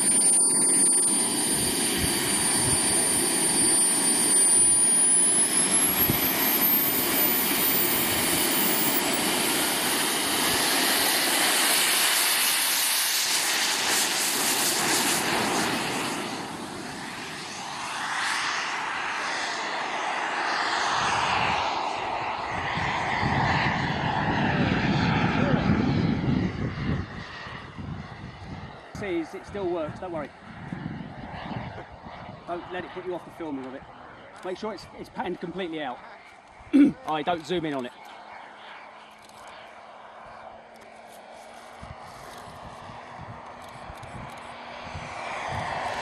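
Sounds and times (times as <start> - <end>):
model jet turbine whining: 0.0 - 36.1
jet roar: 0.0 - 46.0.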